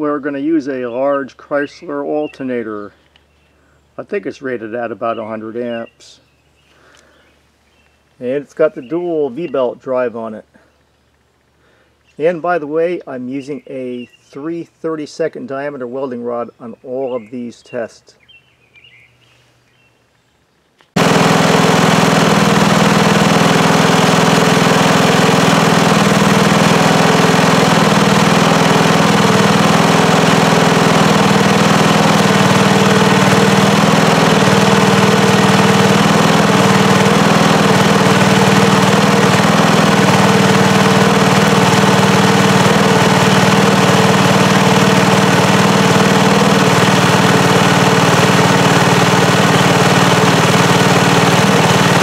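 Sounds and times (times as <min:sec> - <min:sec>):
engine running under load: 0:21.0 - 0:52.0.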